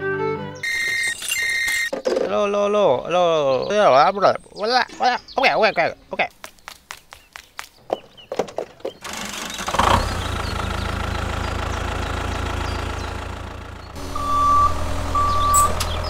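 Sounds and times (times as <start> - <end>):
reversing beeps: 0.6 - 1.9, 14.1 - 16.0
tractor engine running: 8.2 - 16.0.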